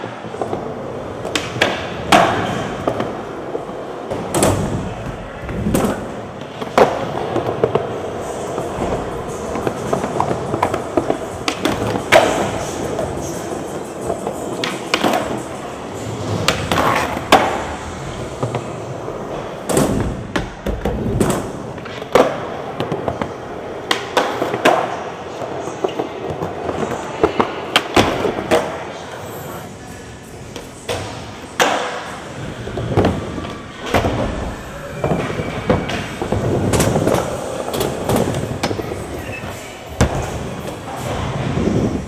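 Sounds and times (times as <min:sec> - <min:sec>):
skateboard wheels rolling on concrete: 0:30.6 - 0:42.0.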